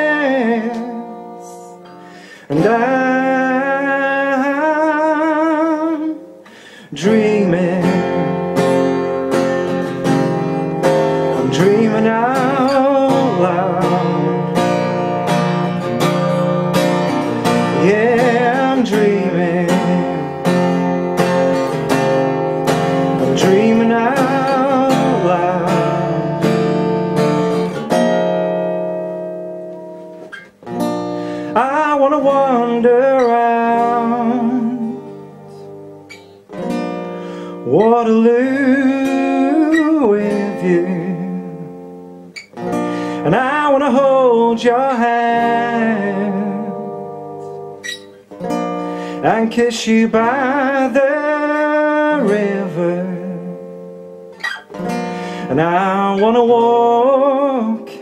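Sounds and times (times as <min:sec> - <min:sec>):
man singing: 0:00.0 - 0:08.7, 0:10.9 - 0:15.4, 0:17.2 - 0:20.7, 0:22.7 - 0:26.9, 0:31.4 - 0:35.4, 0:37.6 - 0:41.8, 0:43.1 - 0:47.2, 0:49.1 - 0:53.8, 0:55.4 - 0:58.0
acoustic guitar strumming: 0:00.0 - 0:58.0.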